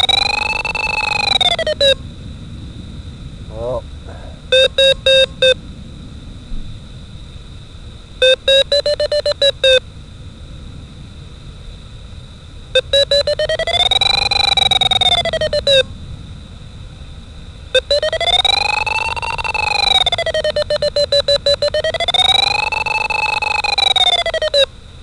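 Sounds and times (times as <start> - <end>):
variometer beeping through loudspeaker: 0.0 - 2.0, 4.5 - 5.6, 8.2 - 9.8, 12.8 - 15.9, 17.8 - 24.7.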